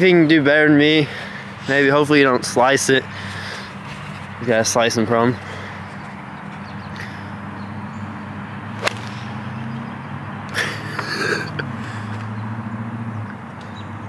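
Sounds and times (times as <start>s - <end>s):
golf club striking ball: 8.8s - 9.6s.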